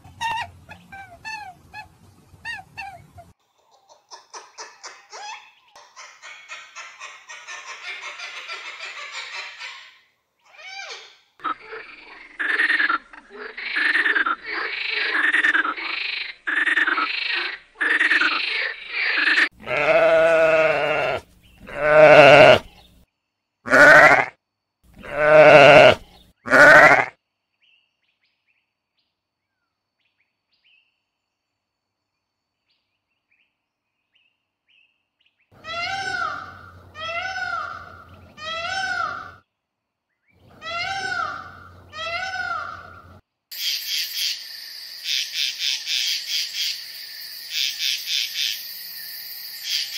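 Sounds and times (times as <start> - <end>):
cockatoo chattering: 0.0 - 10.0, 40.5 - 44.3
sheep bleating: 19.6 - 22.7, 23.7 - 24.3, 25.0 - 27.1
short high bleats: 19.6 - 22.7, 23.7 - 24.4, 25.0 - 27.2.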